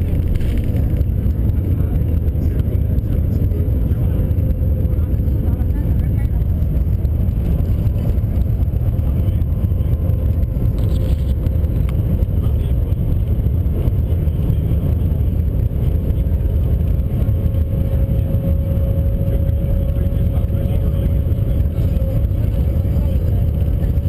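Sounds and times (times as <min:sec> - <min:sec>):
faint whine: 0:00.0 - 0:24.0
train cabin rumble: 0:00.0 - 0:24.0.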